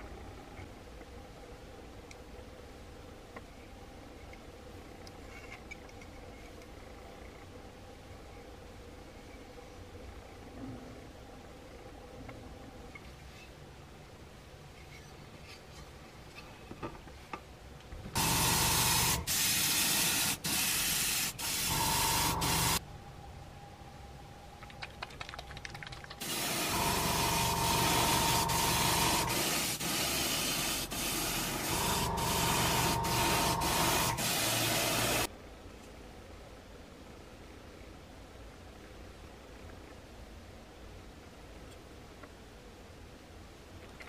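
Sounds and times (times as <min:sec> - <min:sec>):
spray paint hissing: 0:18.2 - 0:22.8, 0:26.2 - 0:35.3.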